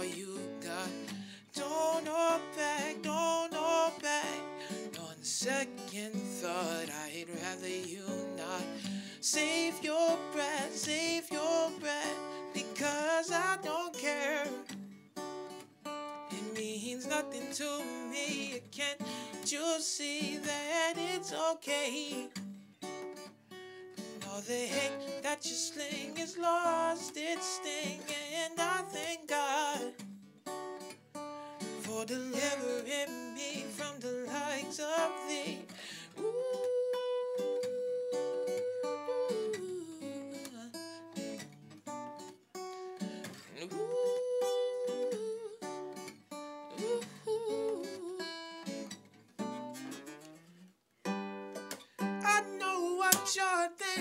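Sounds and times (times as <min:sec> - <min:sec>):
man singing: 0:00.0 - 0:14.7, 0:16.3 - 0:22.4, 0:24.2 - 0:30.0, 0:31.8 - 0:41.0, 0:43.3 - 0:45.8, 0:46.7 - 0:48.4, 0:52.2 - 0:54.0
acoustic guitar: 0:00.0 - 0:54.0.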